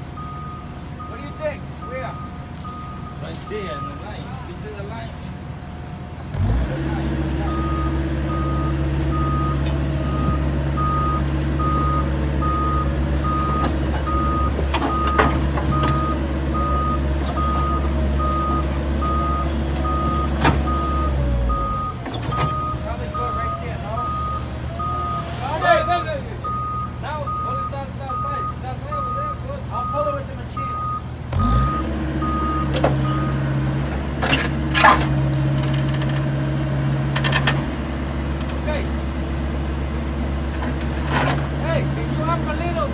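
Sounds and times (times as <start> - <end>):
diesel engine running under load: 0.0 - 42.9
backup alarm beeping: 0.2 - 4.4, 7.4 - 33.4.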